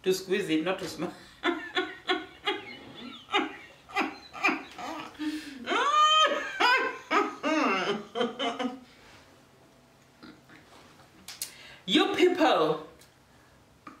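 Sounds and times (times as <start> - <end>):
woman laughing: 1.4 - 8.9
woman crying out: 4.0 - 8.0.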